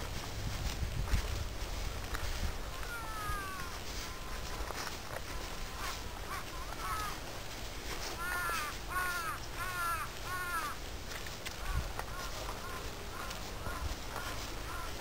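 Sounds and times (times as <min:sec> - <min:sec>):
faint bird calls: 0:02.2 - 0:07.3, 0:07.9 - 0:10.9, 0:11.5 - 0:15.0
crow cawing: 0:02.8 - 0:07.2, 0:08.1 - 0:10.8, 0:11.6 - 0:15.0.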